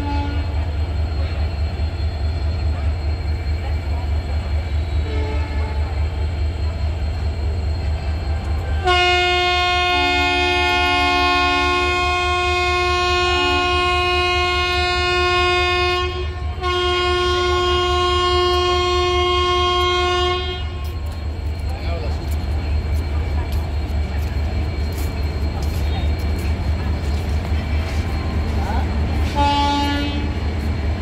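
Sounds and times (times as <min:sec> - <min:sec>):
locomotive horn blast: 0:00.0 - 0:00.6, 0:05.0 - 0:05.9, 0:08.7 - 0:20.8, 0:29.2 - 0:30.4
train coaches rumbling past: 0:00.0 - 0:31.0.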